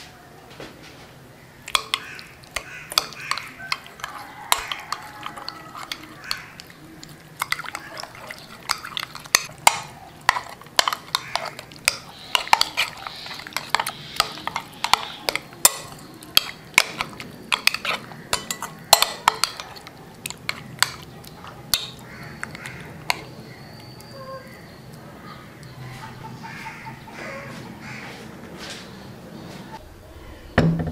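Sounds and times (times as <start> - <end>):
wet squish of coated meat: 1.6 - 24.1
spoon clinking against glass bowl: 1.7 - 24.1.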